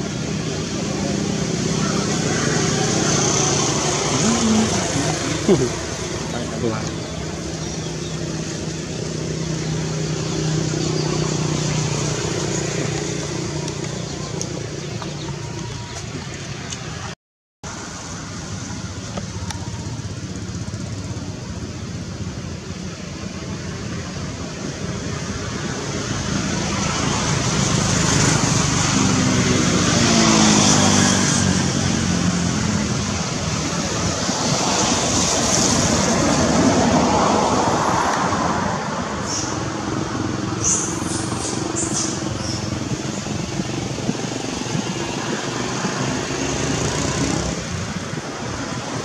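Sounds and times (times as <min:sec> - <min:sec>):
passing motor traffic: 0:00.0 - 0:49.0
outdoor rumble and hiss: 0:17.7 - 0:49.0.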